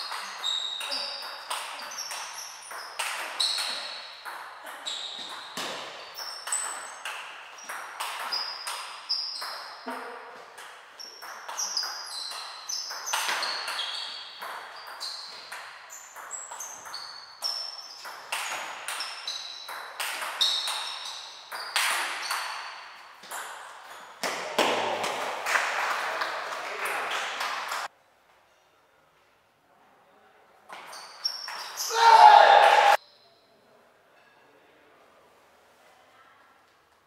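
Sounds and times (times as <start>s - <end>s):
table tennis ball pinging: 0.0s - 25.3s.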